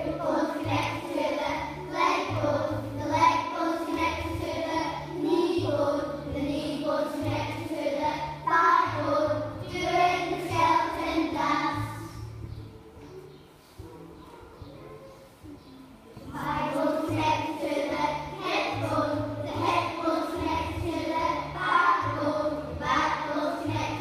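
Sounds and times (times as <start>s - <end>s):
children singing: 0.0s - 12.4s, 15.6s - 24.0s
backing track with bass line: 4.0s - 13.3s, 15.5s - 24.0s.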